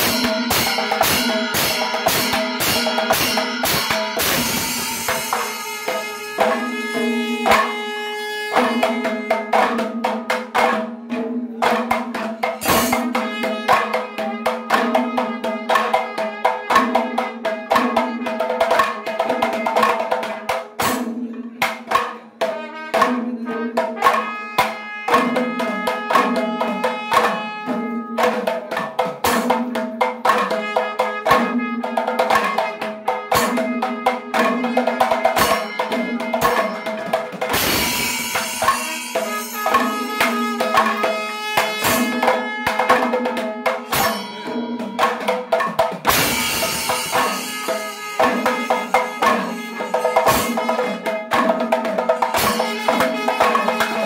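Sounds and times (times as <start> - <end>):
small hand cymbals striking: 0.0 - 9.0, 35.4 - 54.0
barrel drums playing fast rhythms: 0.0 - 54.0.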